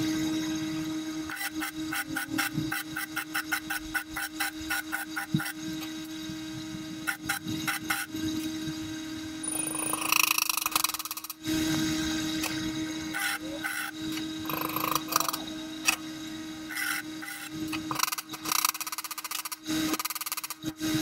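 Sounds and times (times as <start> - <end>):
steady hum: 0.0 - 21.0
hand tool scraping metal: 1.3 - 6.0, 9.4 - 11.4, 12.4 - 16.0
welding arc crackling: 1.3 - 16.0, 16.7 - 20.8.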